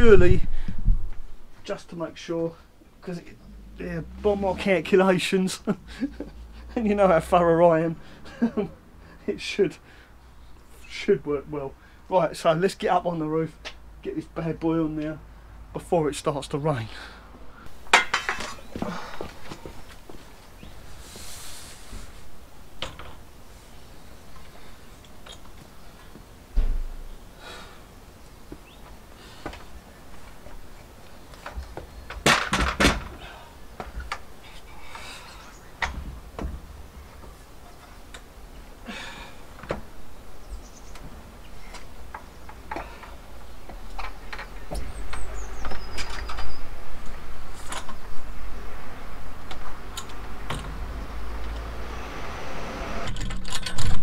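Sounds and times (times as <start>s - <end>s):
wind rumbling on microphone: 0.0s - 1.5s
ladder knocks and clanks: 32.2s - 33.2s.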